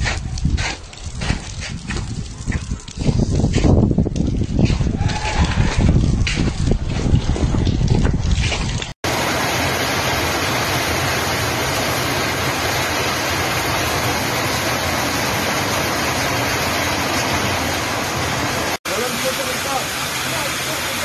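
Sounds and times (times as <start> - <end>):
heavy rain and hail: 8.7 - 21.0.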